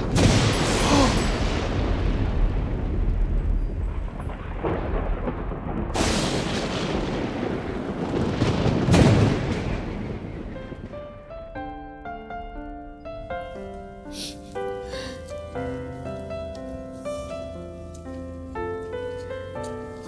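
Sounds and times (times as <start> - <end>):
booming hits: 0.0 - 11.2
soft piano notes: 11.3 - 20.0.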